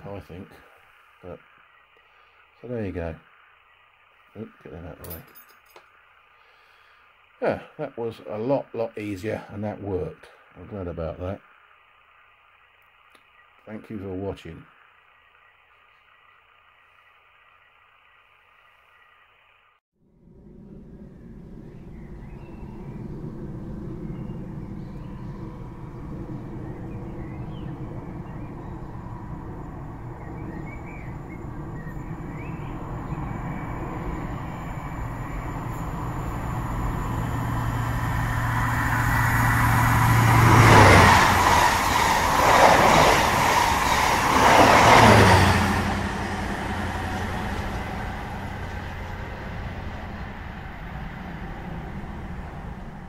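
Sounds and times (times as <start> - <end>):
low engine hum: 20.1 - 53.0
train rushing past: 20.2 - 53.0.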